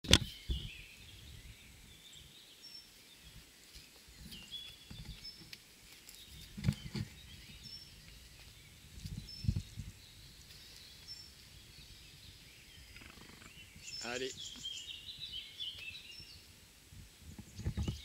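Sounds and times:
high bird chirps: 9.1s - 16.4s.

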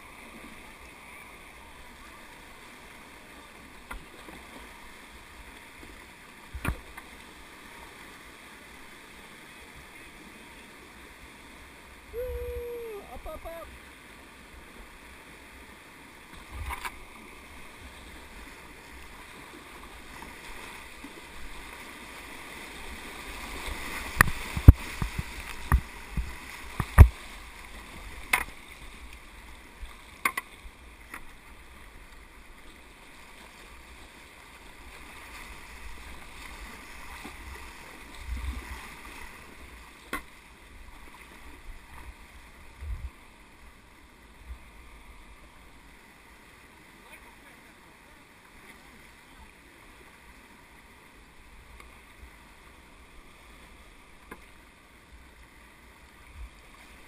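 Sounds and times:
whitewater rushing: 12.1s - 13.8s.

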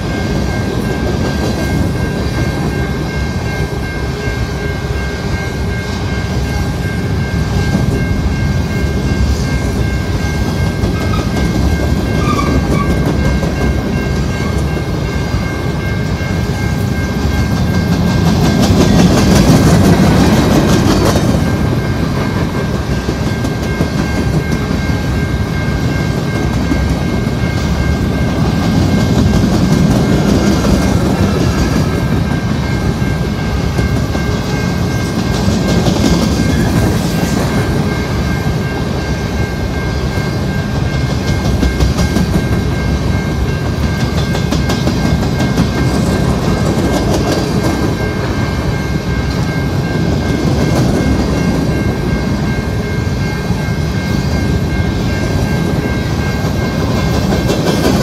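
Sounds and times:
high-pitched ringing: 0.0s - 58.0s
train wheels rumbling on rails: 0.0s - 58.0s.

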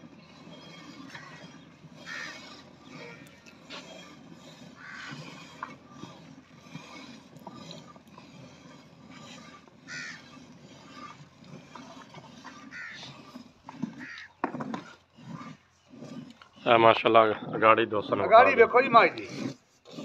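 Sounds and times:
crows cawing: 2.0s - 2.5s, 9.9s - 10.3s, 12.7s - 13.0s, 14.0s - 14.4s.

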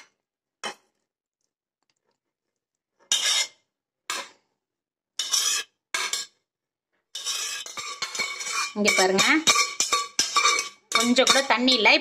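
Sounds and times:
metal spoon scraping a pot: 0.0s - 1.0s, 3.0s - 4.5s, 5.2s - 12.0s.

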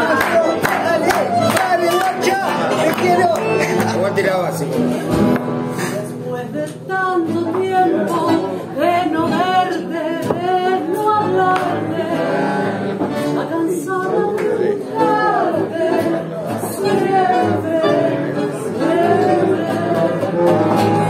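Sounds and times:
acoustic guitar: 0.0s - 21.0s
woman singing: 6.3s - 21.0s
bandoneon: 7.3s - 14.2s, 14.8s - 21.0s.

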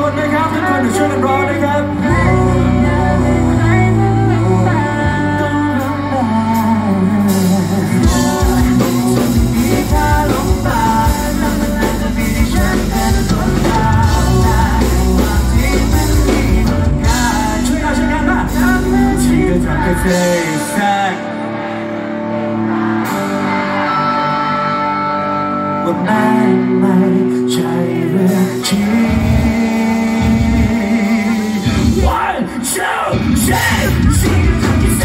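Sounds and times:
bass guitar: 0.0s - 35.0s
person singing into a microphone: 0.0s - 35.0s
drum kit: 2.0s - 21.1s, 28.0s - 35.0s.

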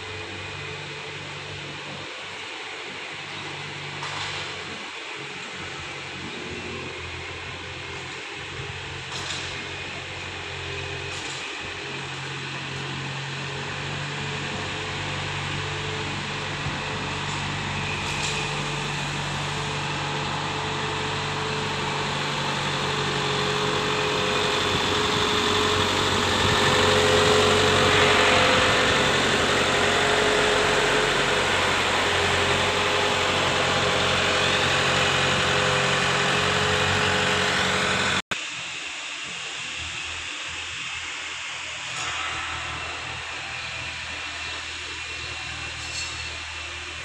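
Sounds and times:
carrier vehicle engine running: 5.6s - 38.4s.

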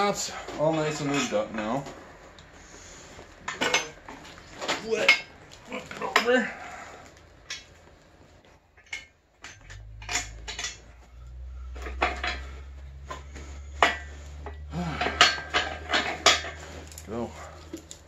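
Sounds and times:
low steady hum: 0.0s - 18.0s
tools clanking on metal engine block: 3.4s - 6.6s, 8.7s - 18.0s.

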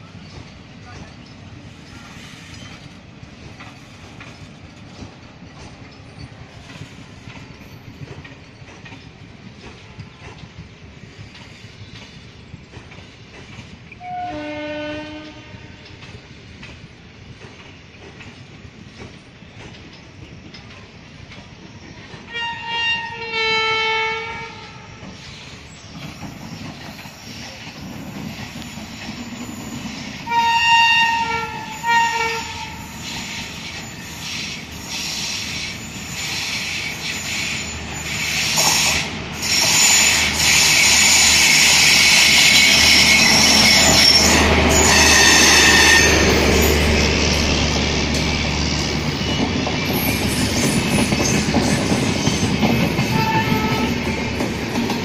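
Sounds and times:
train rumble and wheel clatter: 0.0s - 55.0s
locomotive horn blasts: 14.0s - 15.9s, 22.3s - 24.8s, 30.3s - 32.9s, 53.1s - 54.0s.

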